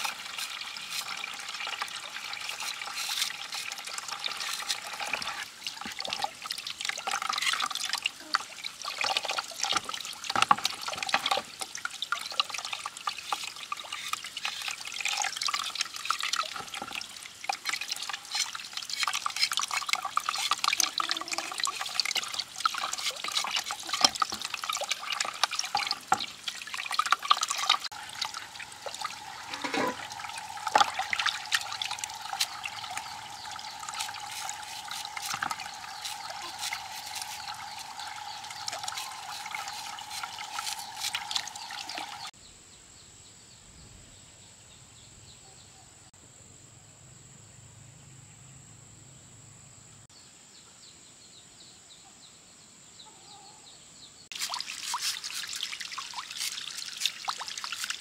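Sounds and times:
hose water splashing into basin: 0:00.0 - 0:42.3, 0:54.3 - 0:58.0
knife scraping skin off tuber: 0:30.7 - 0:41.8.

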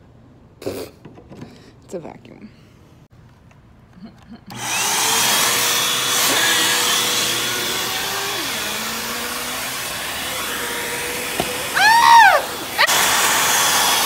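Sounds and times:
vacuum cleaner motor: 0:04.5 - 0:14.0.

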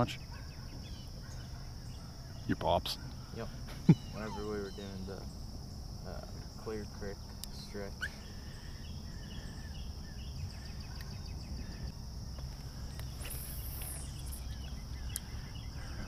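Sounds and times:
crickets trilling: 0:00.0 - 0:16.0
brief high hiss: 0:13.2 - 0:14.4.

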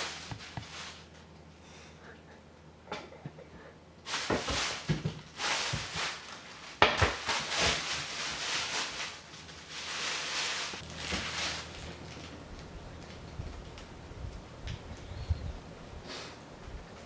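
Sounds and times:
plastic bag rustling: 0:00.0 - 0:01.4, 0:04.1 - 0:14.0.

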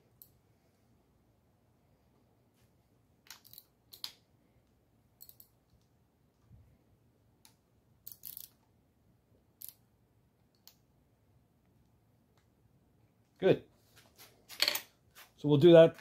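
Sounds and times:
socket wrench clicking: 0:05.2 - 0:05.5, 0:08.0 - 0:08.6.

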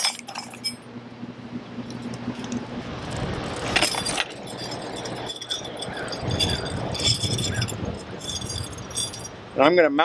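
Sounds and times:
metal straps and bracket clinking: 0:00.0 - 0:00.8, 0:03.1 - 0:09.6.

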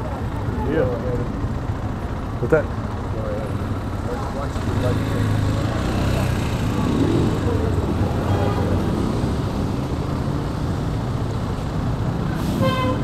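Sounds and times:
motorcycle engine idling: 0:00.0 - 0:08.1
street traffic: 0:00.0 - 0:13.0.

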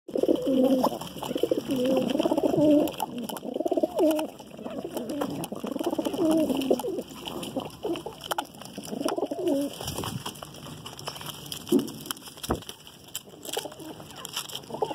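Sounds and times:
pigeons cooing: 0:00.1 - 0:10.3, 0:13.4 - 0:14.9
beaks pecking grain: 0:00.1 - 0:14.9.

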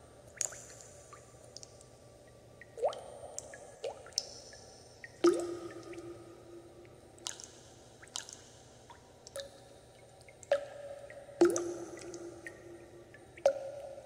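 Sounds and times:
water drops plinking: 0:05.0 - 0:06.2, 0:11.4 - 0:13.9.

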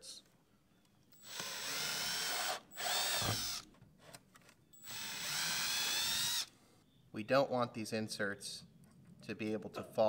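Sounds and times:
power drill motor whining: 0:01.1 - 0:03.7, 0:04.8 - 0:06.5.

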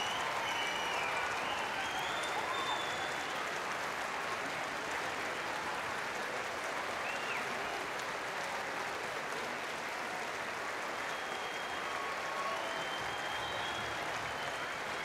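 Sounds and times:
high whistle: 0:00.0 - 0:03.4, 0:11.1 - 0:15.0
audience applauding: 0:00.0 - 0:15.0.

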